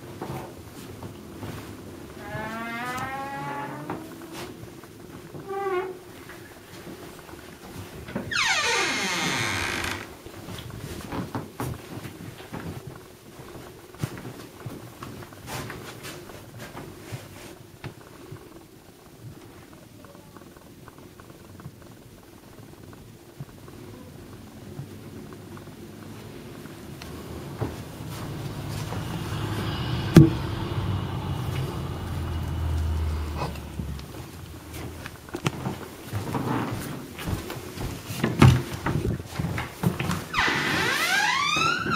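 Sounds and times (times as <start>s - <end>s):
footsteps in a room: 0.0s - 18.6s, 24.6s - 41.9s
vehicle passing: 27.0s - 35.4s
sharp knock: 30.0s - 30.6s.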